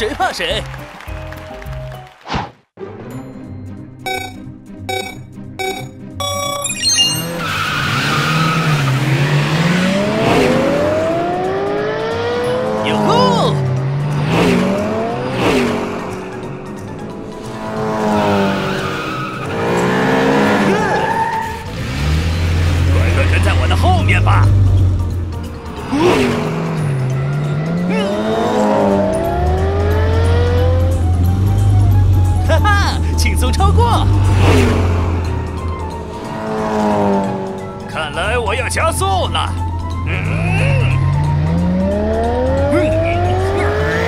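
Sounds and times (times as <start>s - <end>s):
background music: 0.0s - 44.0s
cartoon race car engines revving: 6.9s - 44.0s
tyre screech: 18.7s - 22.8s.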